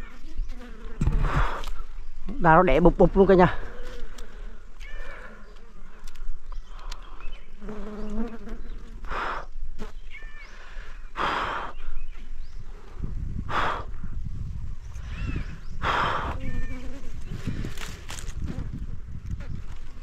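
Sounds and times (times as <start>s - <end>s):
bees buzzing: 0.0s - 11.9s, 15.8s - 20.0s
man breathing hard: 1.1s - 1.8s, 9.0s - 9.6s, 10.5s - 12.1s, 13.4s - 14.2s, 15.0s - 16.4s.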